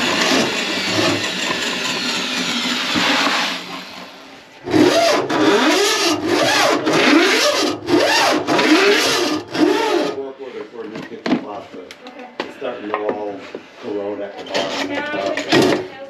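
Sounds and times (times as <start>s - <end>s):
drain auger whirring: 0.0s - 10.2s.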